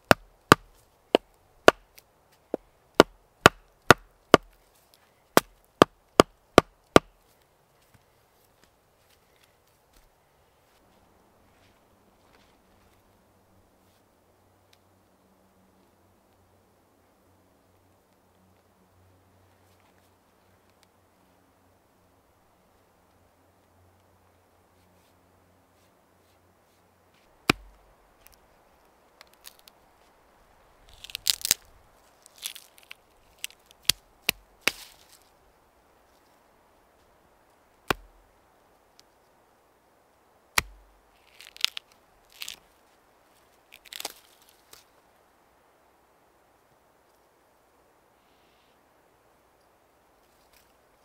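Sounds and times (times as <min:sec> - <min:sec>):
hatchet chopping wood: 0:00.0 - 0:01.9, 0:02.5 - 0:04.6, 0:05.4 - 0:07.1, 0:27.4 - 0:27.8, 0:37.9 - 0:38.2, 0:40.6 - 0:40.9
faint steady hiss: 0:00.0 - 0:51.0
crunching and crackling: 0:30.8 - 0:35.3, 0:40.6 - 0:44.9.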